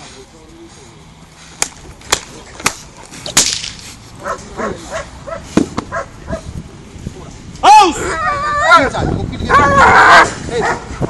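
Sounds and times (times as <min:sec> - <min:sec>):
sharp cracks: 0:01.6 - 0:03.9.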